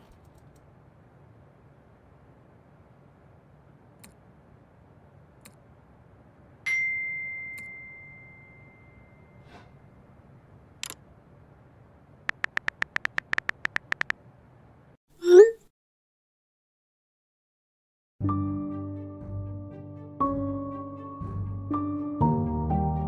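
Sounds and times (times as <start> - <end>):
faint room hum: 0.0 - 12.6
click: 4.0 - 4.2, 5.4 - 5.6.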